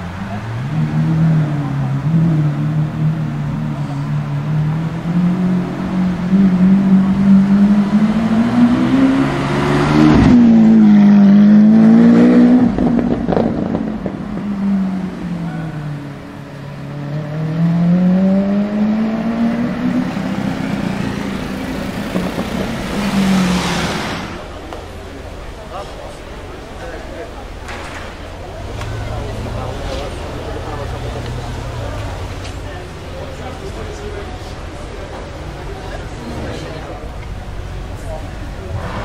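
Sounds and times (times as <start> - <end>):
car engine revving: 0.0 - 25.6, 35.6 - 39.0
exhaust crack: 9.8 - 15.9, 20.1 - 26.3.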